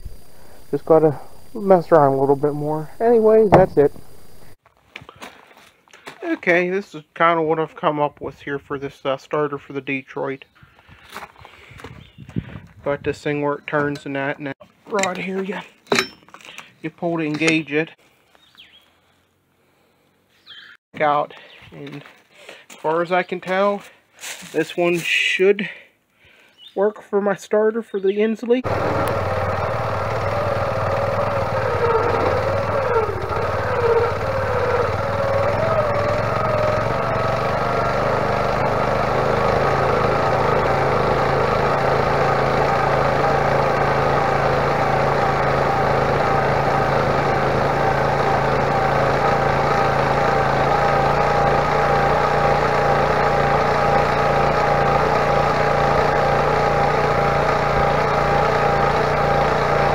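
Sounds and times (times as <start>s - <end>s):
small engine running: 28.6s - 59.9s.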